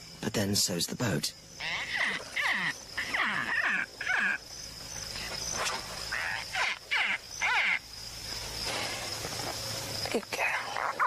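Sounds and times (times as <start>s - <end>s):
crocodile distress calls: 1.6s - 4.6s, 6.1s - 7.9s, 10.6s - 11.0s.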